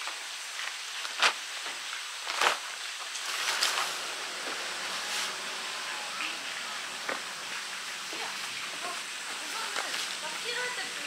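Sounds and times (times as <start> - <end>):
nylon fabric rustling: 0.7 - 7.4.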